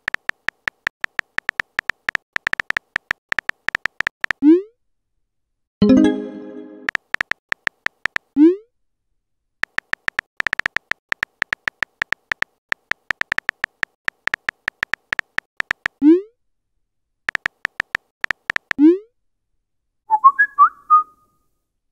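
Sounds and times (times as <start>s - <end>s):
keyboard tapping clicks: 0.0s - 4.4s, 6.8s - 8.3s, 9.6s - 16.0s, 17.3s - 18.8s
short high tones: 5.8s - 6.9s.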